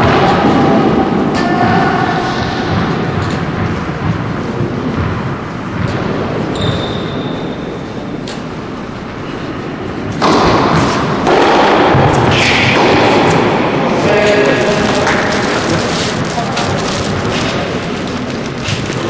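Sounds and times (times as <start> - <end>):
loud rushing noise: 0.0 - 19.0
tennis ball hits and bounces: 10.1 - 13.5.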